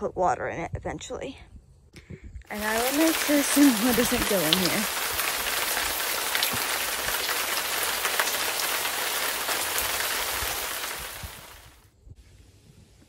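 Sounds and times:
rain into plastic pool: 2.5s - 11.8s
rain on wooden deck: 2.5s - 11.8s.

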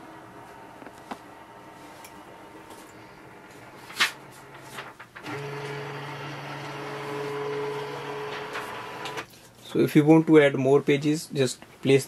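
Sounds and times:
scanner motor humming: 5.3s - 9.2s.

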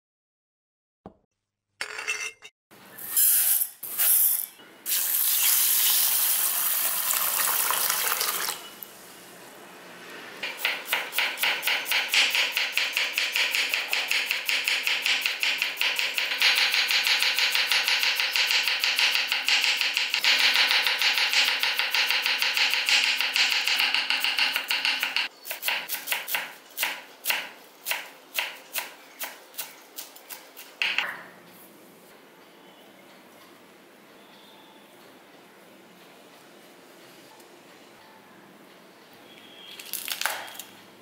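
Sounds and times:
water pouring into a pot: 5.4s - 8.7s.

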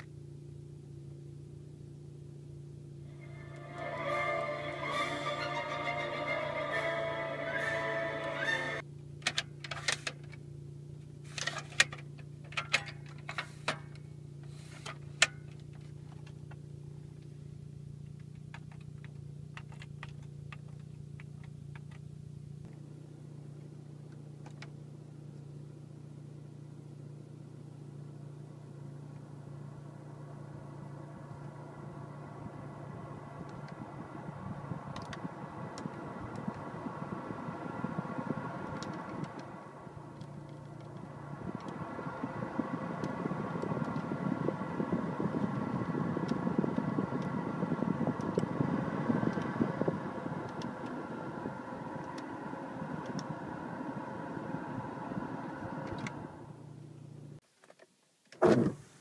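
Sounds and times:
low cabin hum: 0.0s - 57.4s
blower fan rush of air: 32.2s - 56.5s.

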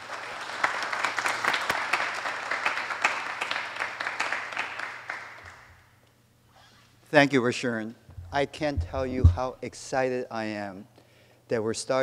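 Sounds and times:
audience applause: 0.0s - 5.7s.

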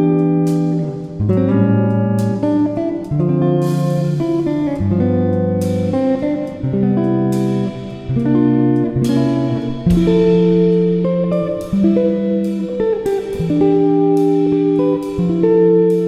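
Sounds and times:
plucked guitar chords: 0.0s - 16.0s.

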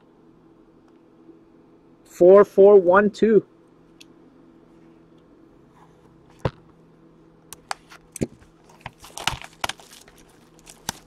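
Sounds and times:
foil wrapper crinkling: 8.5s - 11.0s.

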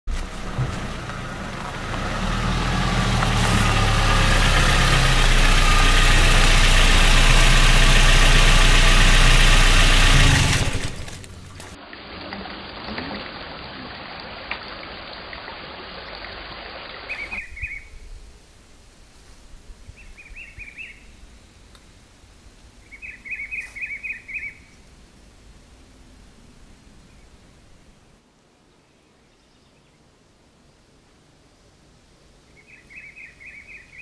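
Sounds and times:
vehicle engine running: 0.1s - 11.8s
bird chirps: 17.1s - 18.0s, 22.8s - 24.8s, 32.6s - 34.0s.

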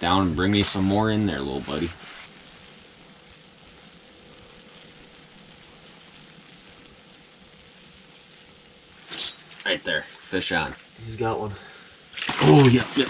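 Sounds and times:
faint steady hiss: 0.0s - 13.0s
thin steady hum: 0.0s - 13.0s.

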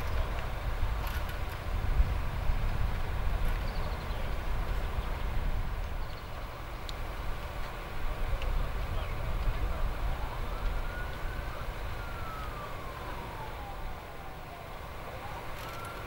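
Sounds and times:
steady low rumble: 0.0s - 16.0s
siren wailing: 9.6s - 16.0s.

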